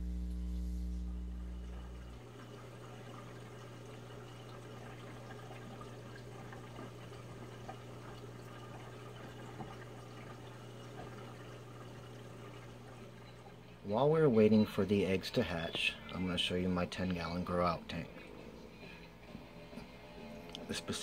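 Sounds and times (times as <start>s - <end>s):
low pump hum: 0.0s - 21.0s
water drips: 1.4s - 17.6s
water trickling and splashing: 1.5s - 17.6s.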